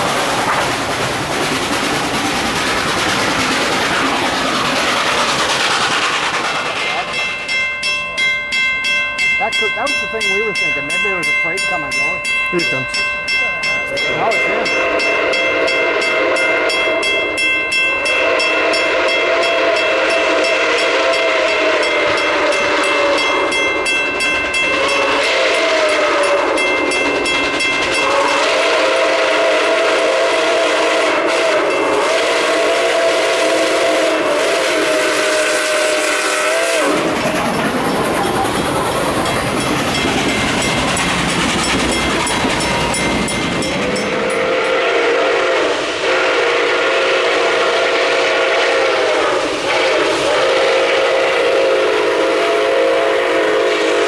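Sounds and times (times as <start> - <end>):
train wheels rumbling on rails: 0.0 - 54.0
steam locomotive whistle blasts: 13.9 - 23.9, 24.6 - 37.2, 43.9 - 54.0.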